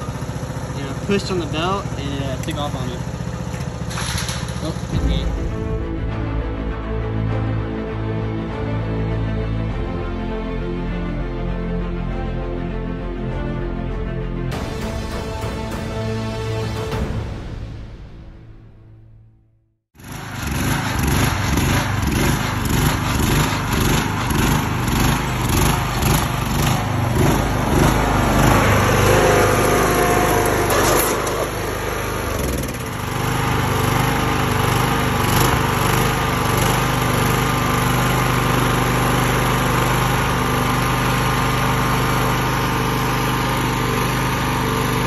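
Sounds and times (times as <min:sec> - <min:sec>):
lawnmower engine running: 0:00.0 - 0:05.3, 0:20.0 - 0:45.0.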